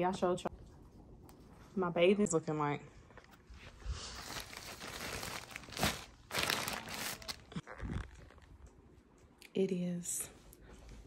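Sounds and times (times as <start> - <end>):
clothing and packaging rustling: 3.4 - 8.6.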